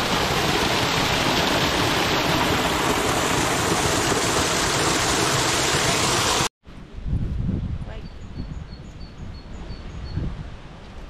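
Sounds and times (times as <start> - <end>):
fast-flowing water rushing: 0.0 - 6.5.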